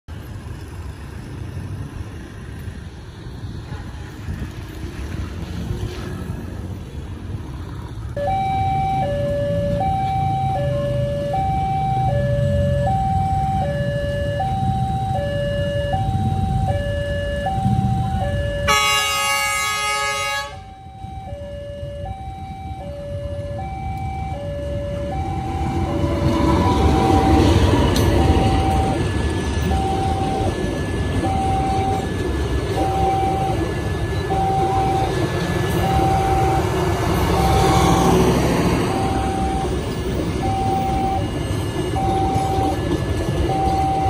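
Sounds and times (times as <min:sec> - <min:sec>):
arriving train rumble: 0:00.1 - 0:44.0
idling road traffic rumble: 0:00.1 - 0:44.0
level crossing alarm two-tone: 0:08.2 - 0:44.0
train horn: 0:18.6 - 0:20.7.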